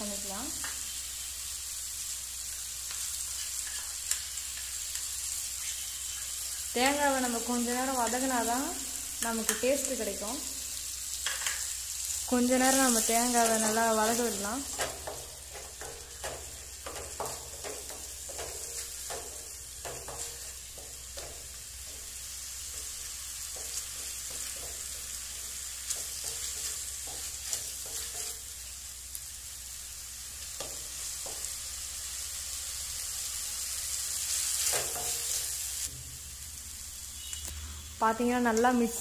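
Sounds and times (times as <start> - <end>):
coconut masala sizzling: 0.0 - 39.0
spatula scraping a pan: 2.9 - 5.0, 12.8 - 28.6.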